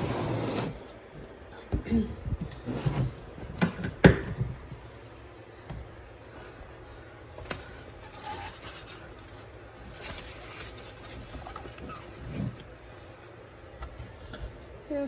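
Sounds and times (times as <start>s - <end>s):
rustling artificial leaves: 7.2s - 15.0s.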